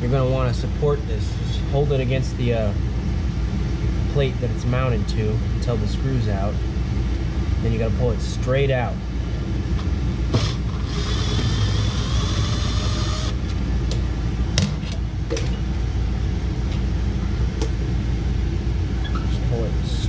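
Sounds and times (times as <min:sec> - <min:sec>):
steady low rumble: 0:00.0 - 0:20.0
power driver motor whirring: 0:10.3 - 0:13.4.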